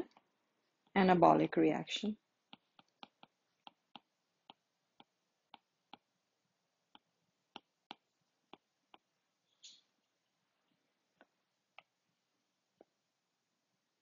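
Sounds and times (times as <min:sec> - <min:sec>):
stylus tapping on tablet screen: 0:02.4 - 0:06.2, 0:06.9 - 0:09.8, 0:11.1 - 0:12.0, 0:12.7 - 0:13.0.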